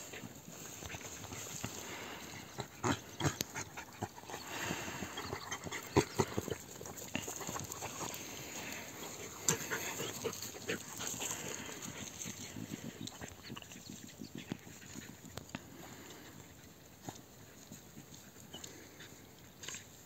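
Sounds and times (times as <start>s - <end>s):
dogs snuffling and panting: 0.0s - 20.0s.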